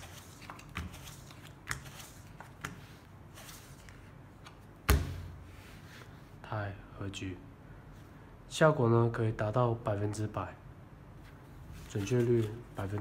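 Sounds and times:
playing cards clicking and sliding: 0.0s - 4.7s, 11.8s - 13.0s
card slapping on felt table: 3.5s - 5.4s.

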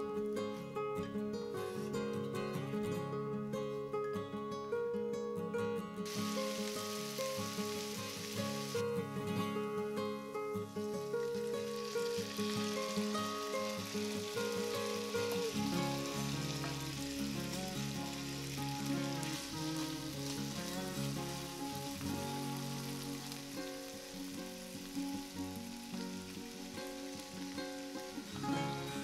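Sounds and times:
soft background music: 6.0s - 29.0s
sausage sizzling in a frying pan: 6.1s - 9.0s, 10.7s - 29.0s.

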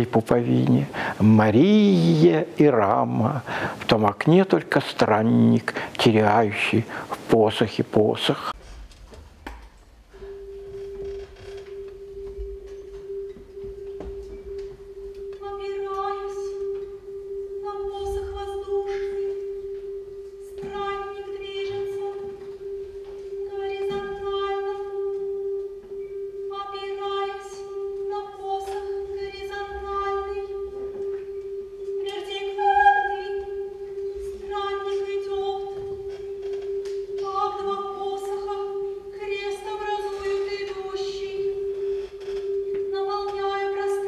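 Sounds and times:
female voice singing: 20.4s - 22.7s, 23.3s - 25.6s, 26.4s - 31.2s, 32.0s - 36.2s, 37.1s - 41.6s.

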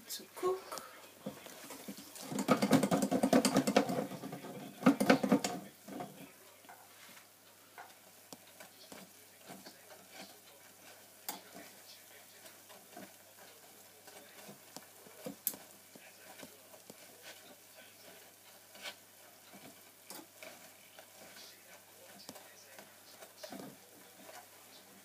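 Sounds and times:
dough deep-frying in oil: 0.0s - 25.0s.

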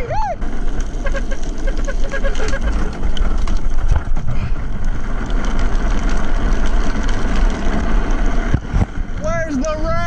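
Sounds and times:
tyres on wet road: 0.0s - 10.0s.

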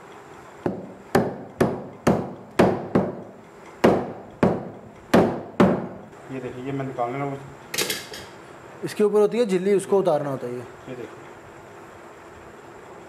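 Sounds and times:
cleaver chopping on wooden block: 0.7s - 6.0s.

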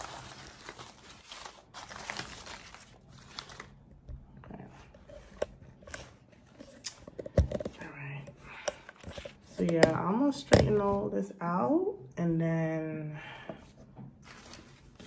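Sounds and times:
banknotes rustling: 0.0s - 3.8s.

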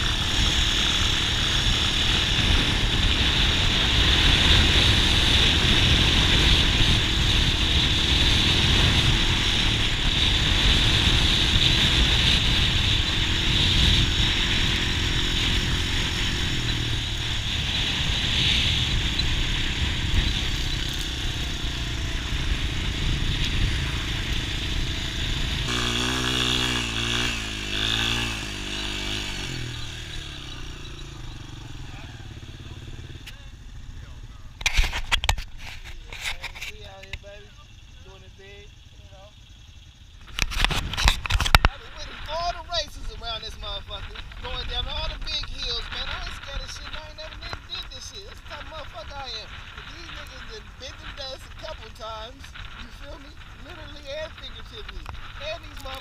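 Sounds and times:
dense low rumble: 0.0s - 56.0s
quad bike engine running: 0.0s - 56.0s.

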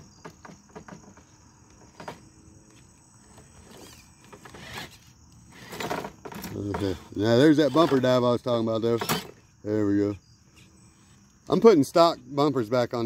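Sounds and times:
crickets chirping: 0.0s - 13.0s
tyres scraping on concrete: 3.3s - 9.4s.

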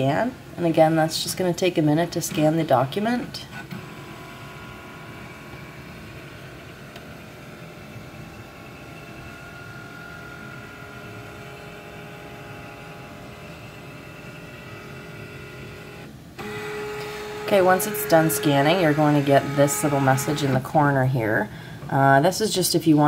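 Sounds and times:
scanner motor whine: 3.7s - 20.7s.

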